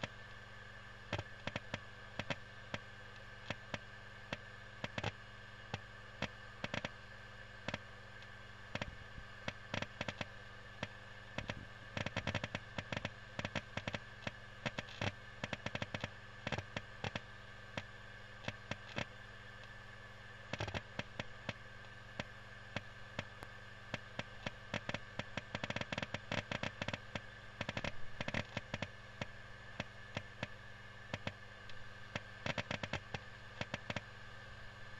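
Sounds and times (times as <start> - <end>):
hard disk seek clicks: 0.0 - 34.9
steady hum with high tone: 0.0 - 34.9.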